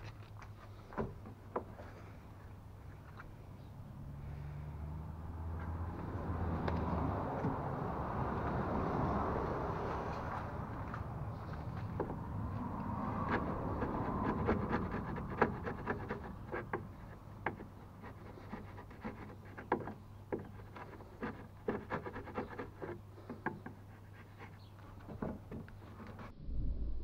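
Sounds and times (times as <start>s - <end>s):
chisel scraping wood: 10.7s - 26.3s
low hum: 25.9s - 27.0s.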